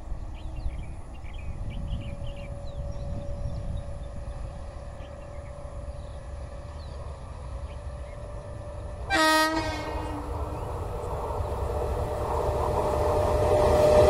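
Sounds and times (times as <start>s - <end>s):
oncoming train rumble: 0.0s - 14.0s
train horn blast: 9.0s - 10.6s, 11.6s - 14.0s.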